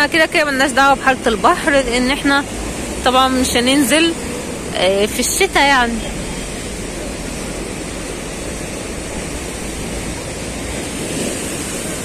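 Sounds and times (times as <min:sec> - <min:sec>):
waves breaking over rocks: 0:04.1 - 0:12.0.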